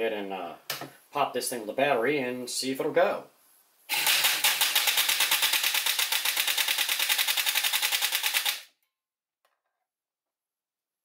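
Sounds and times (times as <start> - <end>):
toy blaster pusher motor clattering: 3.9 - 8.7.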